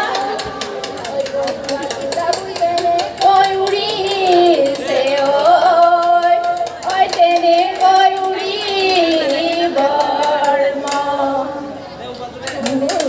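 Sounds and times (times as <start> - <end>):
women singing over loudspeakers: 0.0 - 13.0.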